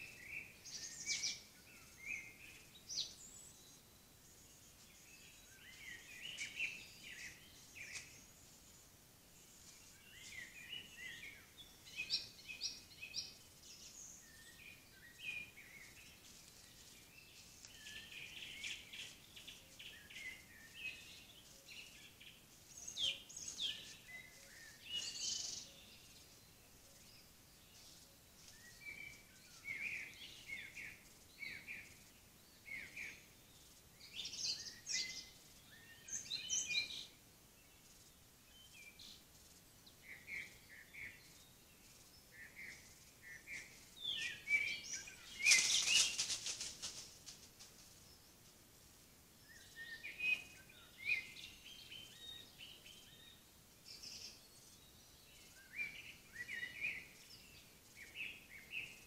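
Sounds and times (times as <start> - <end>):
songbirds singing: 0.0 - 59.0.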